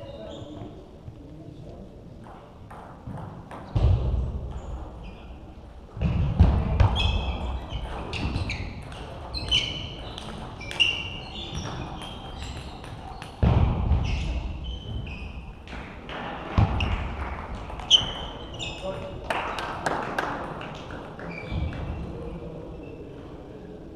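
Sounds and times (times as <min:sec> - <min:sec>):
table tennis balls pinging: 0:02.2 - 0:04.9, 0:06.0 - 0:19.1.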